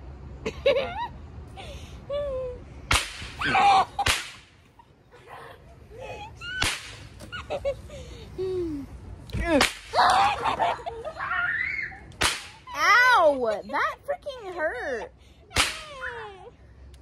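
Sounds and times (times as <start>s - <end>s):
sharp smacks: 2.9s - 3.4s, 4.0s - 4.5s, 6.6s - 7.2s, 9.3s - 10.1s, 12.1s - 12.6s, 15.5s - 15.9s
kids squealing: 9.9s - 13.2s.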